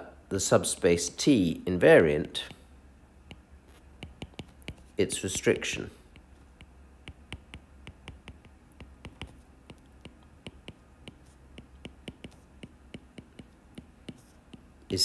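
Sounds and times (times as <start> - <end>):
stylus tapping on glass screen: 3.2 - 4.9, 6.1 - 15.0.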